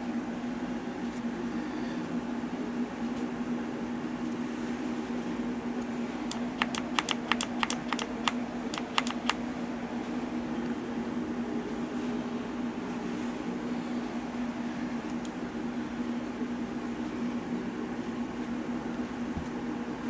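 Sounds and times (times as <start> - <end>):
steady low hum: 0.0 - 20.0
sharp plastic clicks: 6.3 - 9.4.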